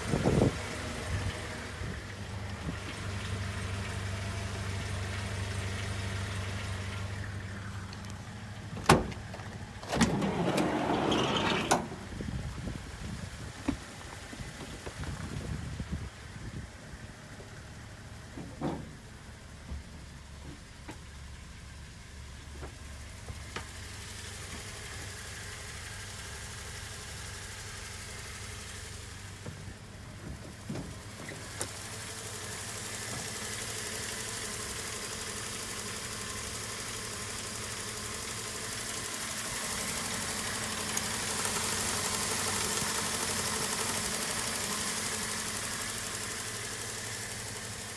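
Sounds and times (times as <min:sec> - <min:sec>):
petrol engine idling: 0:00.0 - 0:47.9.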